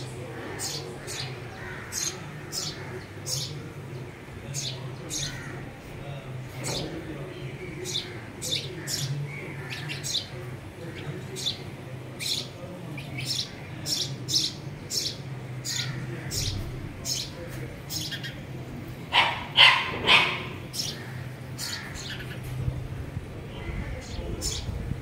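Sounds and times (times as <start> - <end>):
steady low hum: 0.0 - 19.6
small birds chirping: 0.0 - 25.0.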